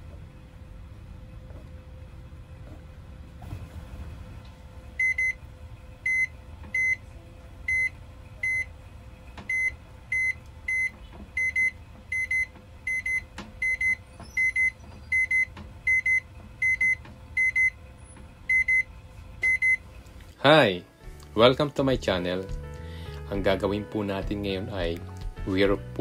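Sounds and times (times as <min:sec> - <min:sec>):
microwave short high beeps: 0:05.0 - 0:05.4, 0:06.1 - 0:07.0, 0:07.7 - 0:08.7, 0:09.5 - 0:17.8, 0:18.5 - 0:19.8.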